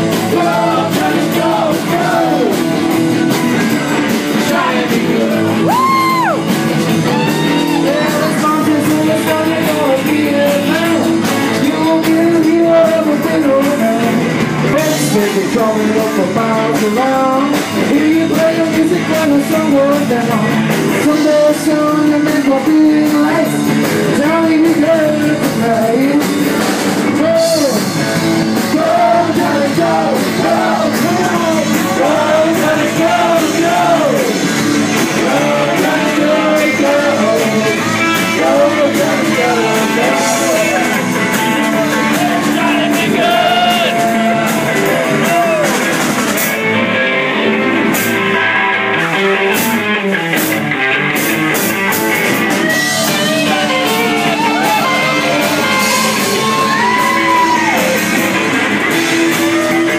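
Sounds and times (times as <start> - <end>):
man singing into microphone: 0.0 - 2.7, 4.3 - 6.3, 7.3 - 45.8, 52.6 - 58.2
drum and cymbal hits: 0.0 - 46.8
live rock band playing: 0.0 - 59.9.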